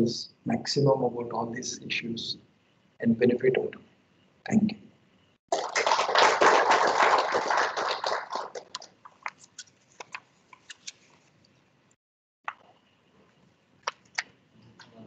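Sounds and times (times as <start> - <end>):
audience applauding: 5.5 - 8.9.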